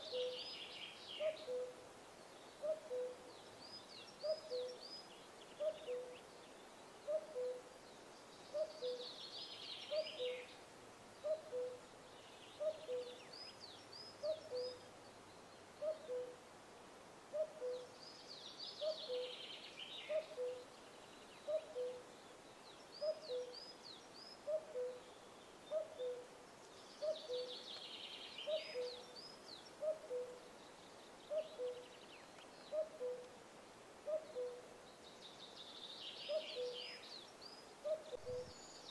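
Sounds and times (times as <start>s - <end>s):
birds twittering: 34.1s - 38.9s.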